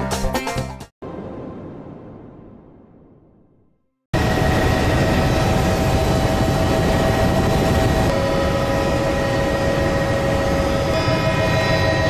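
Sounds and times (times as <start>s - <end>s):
aircraft cabin engine noise: 4.2s - 12.0s.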